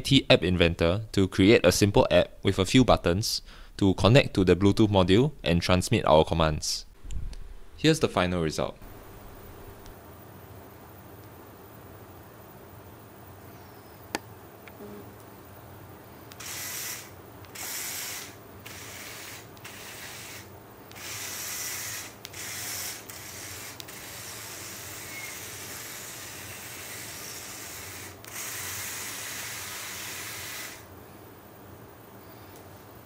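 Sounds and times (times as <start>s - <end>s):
toy robot motors whirring: 16.3s - 30.9s.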